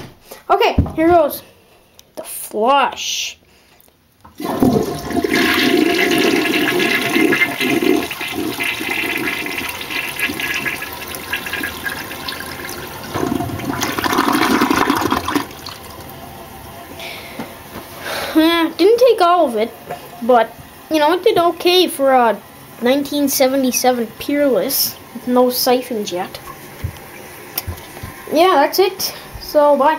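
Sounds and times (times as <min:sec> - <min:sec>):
toilet flushing: 0:04.3 - 0:29.9
steady run of water: 0:19.2 - 0:29.0.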